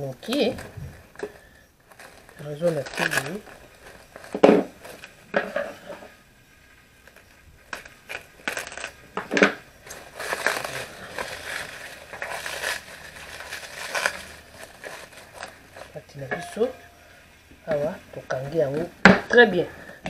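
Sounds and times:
rustling: 0.0 - 20.0
basin cover clinking: 16.1 - 17.2.

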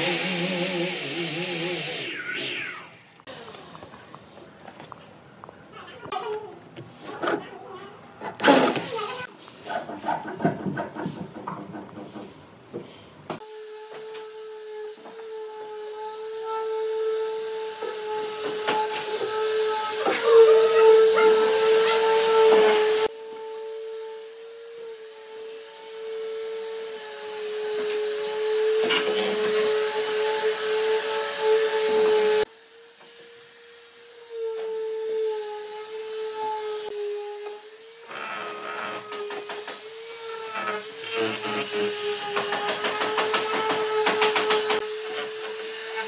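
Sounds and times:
power tool motor whine: 0.0 - 3.6, 13.4 - 46.0
tool grinding wood: 0.0 - 3.6, 16.2 - 23.1, 34.0 - 46.0.

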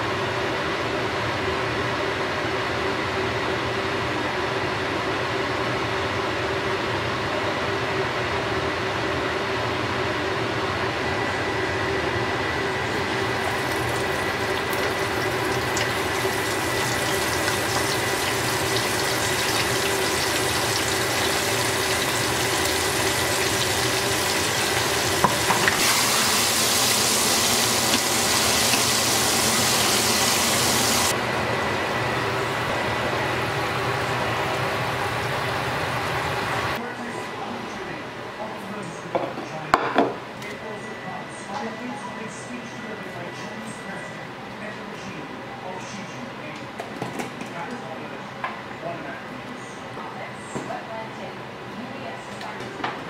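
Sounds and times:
fish sizzling in hot oil: 13.0 - 31.1.

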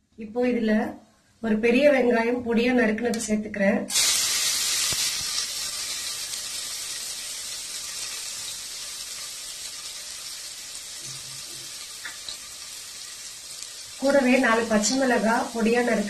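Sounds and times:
onion sizzling in hot oil: 3.9 - 16.0.

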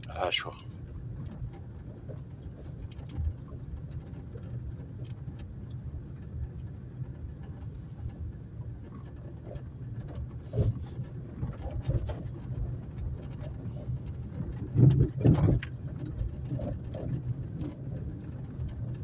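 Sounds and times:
light rattles: 0.0 - 19.0
vehicle on dirt track rumbling: 0.0 - 19.0
vehicle bumps: 9.0 - 19.0.

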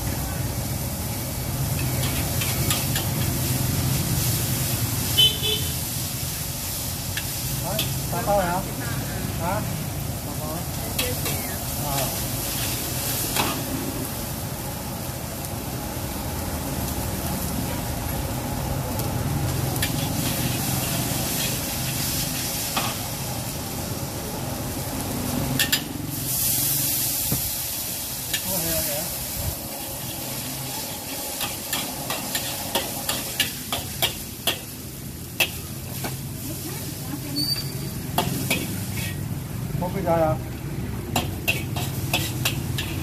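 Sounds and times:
noodles sizzling in a wok: 0.0 - 43.0
metal spatula scraping a wok: 1.6 - 4.6, 19.8 - 23.1, 29.8 - 36.3, 37.2 - 39.3, 41.1 - 43.0.

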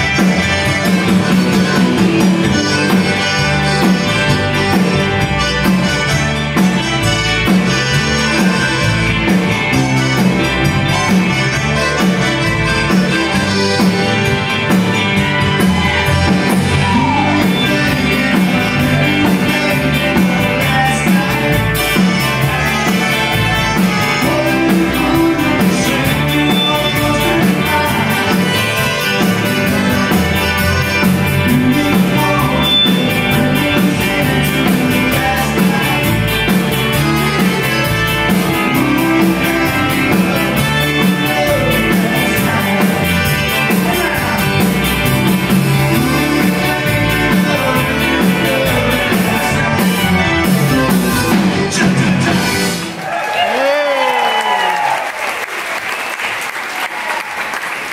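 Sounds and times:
button accordion: 0.0 - 16.7, 36.0 - 51.8
keyboard: 0.0 - 53.0
electric guitar: 0.0 - 53.4
drum kit: 0.0 - 54.9.

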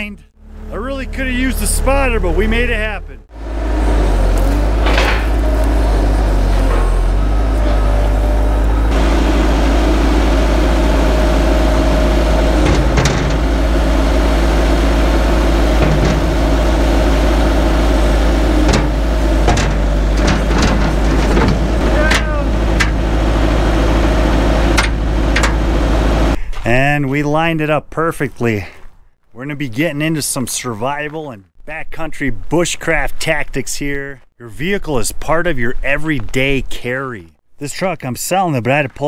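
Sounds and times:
skid steer engine running: 0.4 - 26.4
metal clanks: 11.6 - 25.8.

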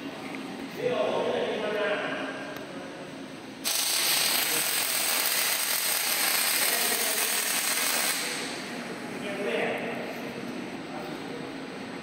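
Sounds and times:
arc welding hiss: 3.6 - 8.6.

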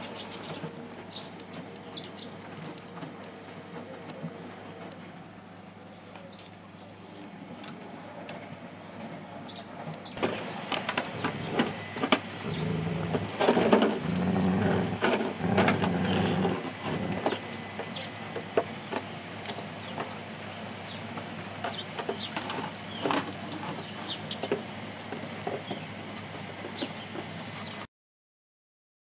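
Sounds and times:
puppies scuffling on paving: 0.0 - 27.9
puppies growling: 10.2 - 19.1.

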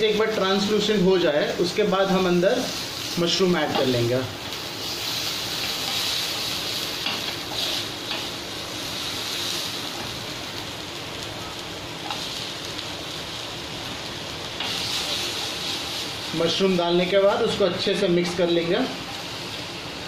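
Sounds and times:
onions sizzling in oil: 0.0 - 20.0
spatula stirring in pan: 2.7 - 10.3.

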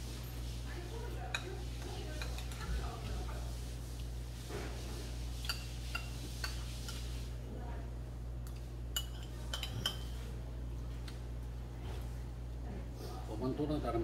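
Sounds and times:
metal spoons clinking on bowls: 1.3 - 2.7, 5.4 - 7.1, 8.4 - 10.2.

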